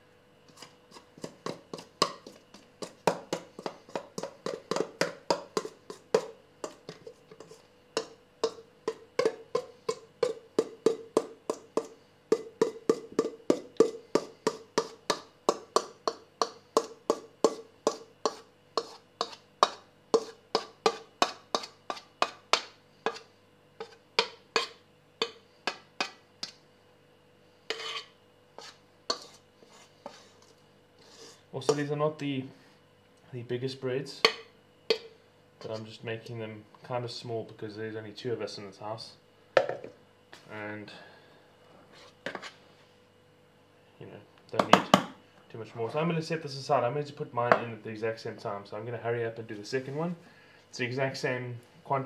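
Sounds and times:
metal spoon scraping a bowl: 0.5 - 15.0, 16.8 - 26.6, 27.7 - 31.8.

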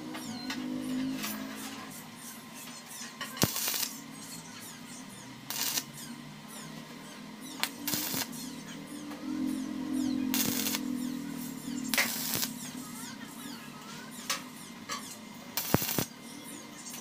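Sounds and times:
arc welding crackle: 0.0 - 17.0.

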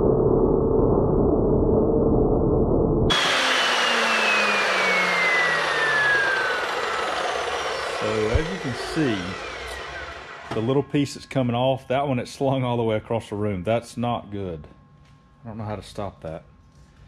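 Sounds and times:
chop saw cutting metal tube: 3.1 - 10.8
saw blade spinning down: 3.1 - 11.3.

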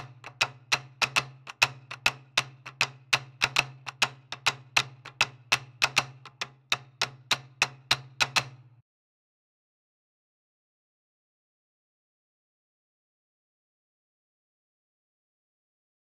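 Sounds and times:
clicking percussion beat: 0.0 - 8.7.

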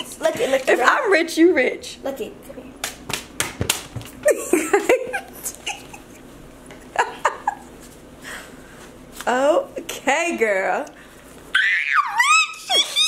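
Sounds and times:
sharp slaps: 2.8 - 4.1
people laughing: 4.2 - 7.7.

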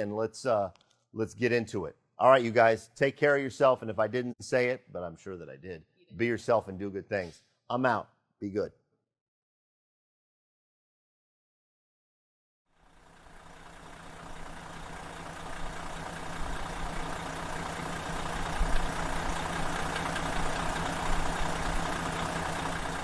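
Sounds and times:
heavy engine rumbling: 13.0 - 23.0.

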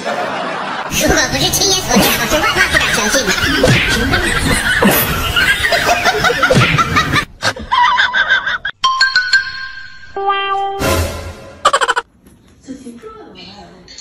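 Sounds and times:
people laughing and snickering: 0.0 - 8.7, 11.6 - 12.0.

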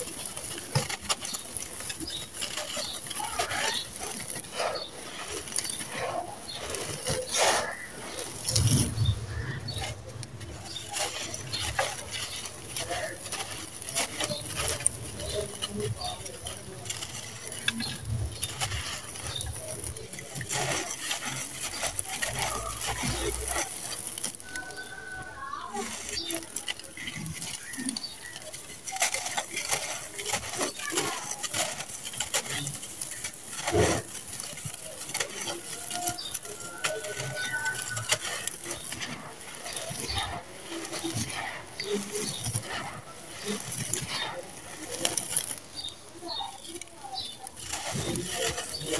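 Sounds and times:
grains pattering down: 0.0 - 48.9.

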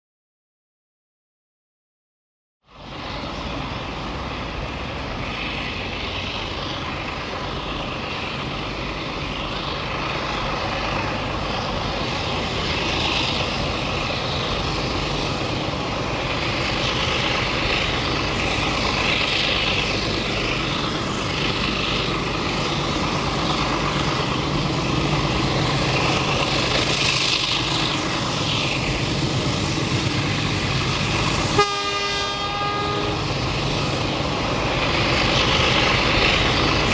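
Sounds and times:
diesel locomotive engines droning: 2.6 - 36.9
train horn blast: 31.5 - 33.3.

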